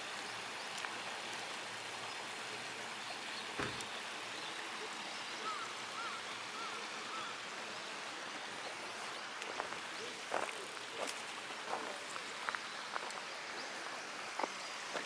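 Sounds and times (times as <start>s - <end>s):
running water rushing: 0.0s - 15.0s
footsteps on gravel: 9.5s - 13.1s.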